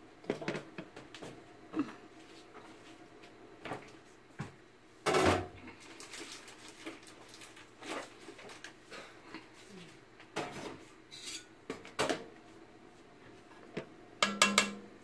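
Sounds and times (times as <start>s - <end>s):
kitchen knocks and clatter: 5.1s - 5.5s, 13.8s - 14.9s.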